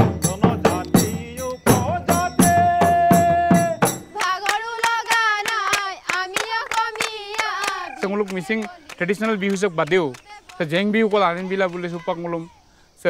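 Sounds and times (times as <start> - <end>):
drumming: 0.0 - 5.3
rhythmic handclaps: 0.0 - 12.0
women singing: 0.5 - 9.5, 10.2 - 10.8.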